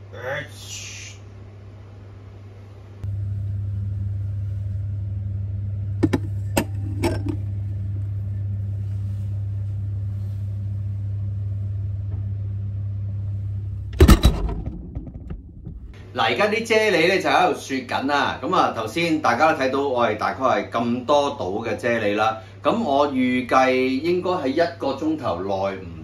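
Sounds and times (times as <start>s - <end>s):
refrigerator hum: 0.0s - 26.0s
fridge door thump: 14.0s - 16.0s.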